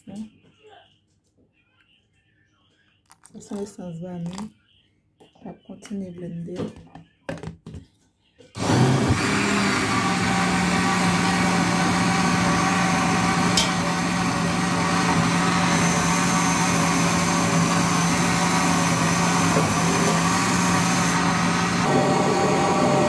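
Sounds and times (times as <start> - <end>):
blender motor running: 8.6 - 23.0.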